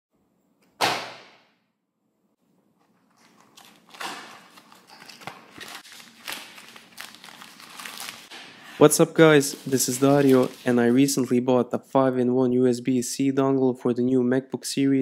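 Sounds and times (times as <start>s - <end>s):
plastic bag rustling: 3.1s - 11.2s.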